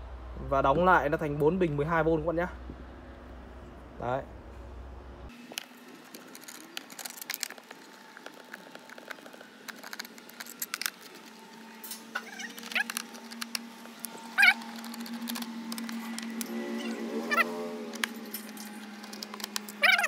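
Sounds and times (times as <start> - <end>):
screwdriver clicking and scraping: 5.6 - 20.0.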